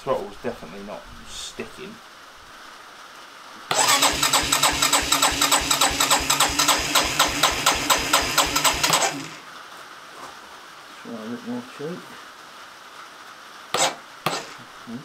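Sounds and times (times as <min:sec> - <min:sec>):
electric starter cranking engine: 0:03.7 - 0:09.4, 0:13.8 - 0:14.6.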